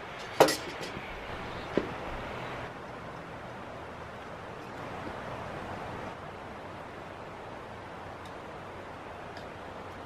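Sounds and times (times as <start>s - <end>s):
outdoor background hiss: 0.0s - 10.0s.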